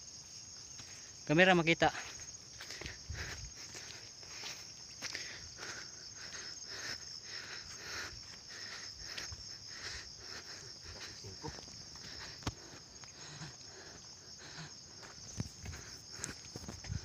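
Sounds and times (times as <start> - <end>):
footsteps on dirt trail: 0.0 - 17.0
high-pitched insect chorus: 0.0 - 17.0.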